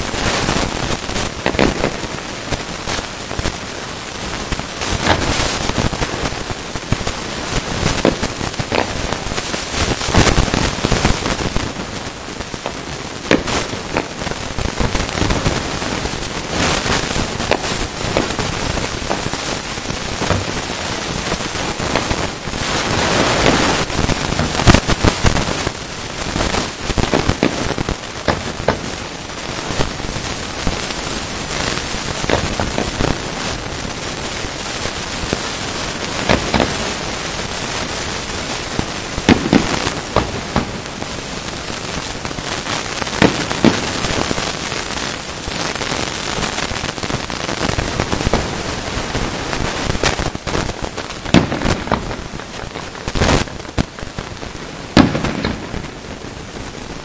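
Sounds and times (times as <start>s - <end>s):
fireworks crackling hiss: 0.0s - 57.0s
fireworks shells banging: 17.4s - 20.7s, 55.0s - 55.8s.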